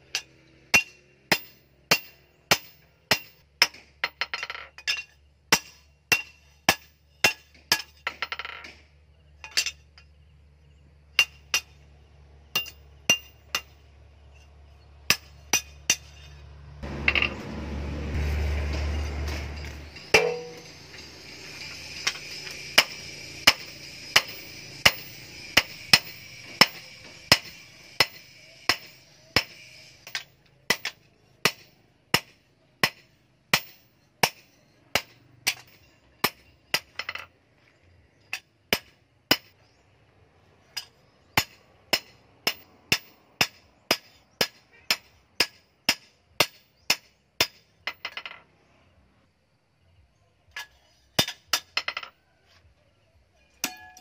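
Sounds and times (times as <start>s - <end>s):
hammer striking metal on anvil: 0.1s - 8.8s, 11.2s - 11.8s, 12.6s - 13.8s, 15.1s - 17.6s, 18.2s - 37.2s, 40.8s - 48.4s, 53.6s - 54.0s.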